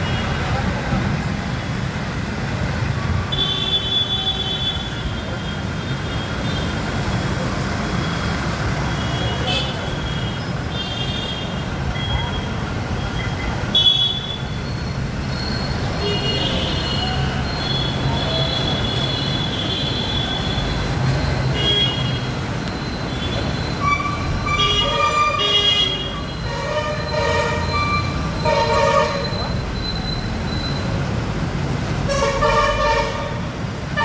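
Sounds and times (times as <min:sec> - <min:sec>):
road traffic rumble: 0:00.0 - 0:34.0
vehicle horns tooting: 0:08.9 - 0:14.8, 0:15.7 - 0:20.8, 0:21.4 - 0:22.4, 0:23.1 - 0:29.6, 0:32.0 - 0:34.0.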